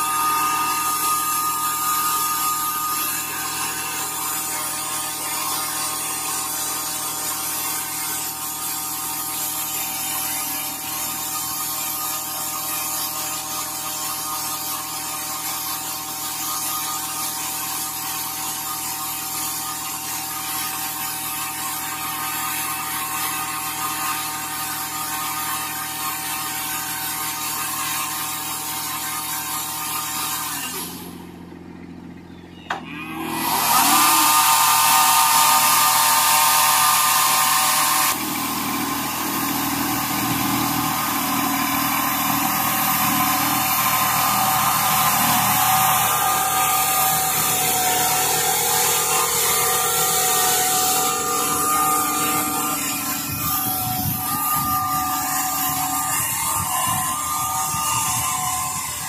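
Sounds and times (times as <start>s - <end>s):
tractor and sprayer whine: 0.0s - 59.0s.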